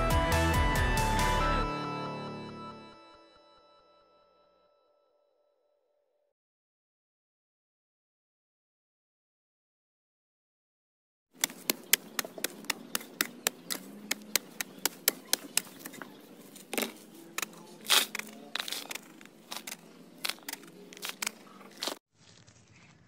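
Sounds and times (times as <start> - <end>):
hoe striking hard soil: 11.4 - 22.0.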